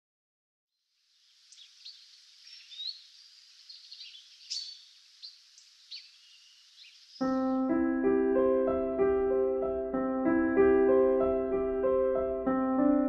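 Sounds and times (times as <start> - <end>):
faint steady hiss: 0.8 - 7.6
birds chirping and calling: 1.5 - 7.7.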